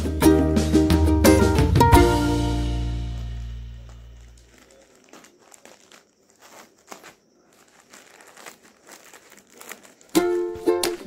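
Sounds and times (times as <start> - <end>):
plastic mailer crinkling: 3.8 - 11.0.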